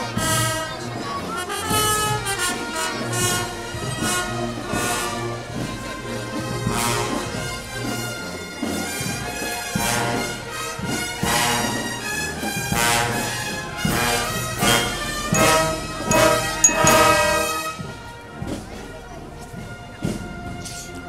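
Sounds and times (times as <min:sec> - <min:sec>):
marching brass band playing: 0:00.0 - 0:21.0
sharp accented drum hits: 0:14.6 - 0:17.5.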